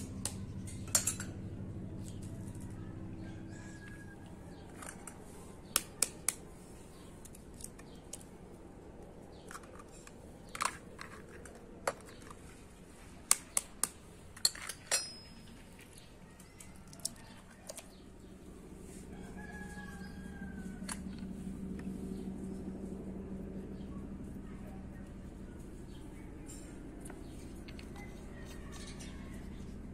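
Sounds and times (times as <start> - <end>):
rooster crowing: 2.8 - 4.7, 18.8 - 21.1, 27.9 - 29.7.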